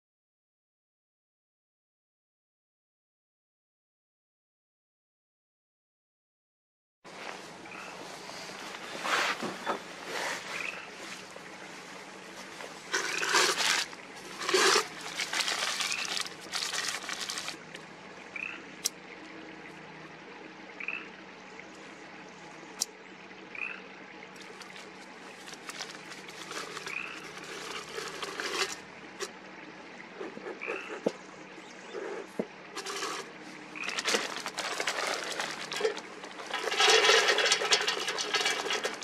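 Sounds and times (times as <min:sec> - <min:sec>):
paper rustling and crumpling: 0:12.4 - 0:17.6, 0:24.5 - 0:28.8, 0:33.8 - 0:39.0.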